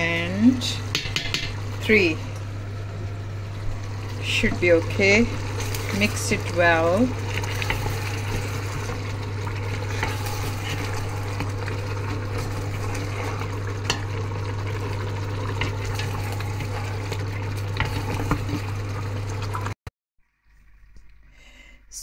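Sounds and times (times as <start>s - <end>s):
steady low hum: 0.0s - 19.5s
food sizzling in a metal pot: 0.3s - 19.7s
wooden spoon knocking and scraping pot: 0.9s - 1.6s.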